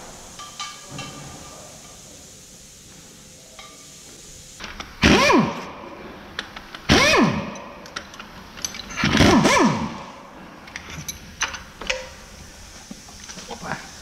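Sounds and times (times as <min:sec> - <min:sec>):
impact wrench whirring: 0:04.6 - 0:06.0, 0:06.8 - 0:10.4.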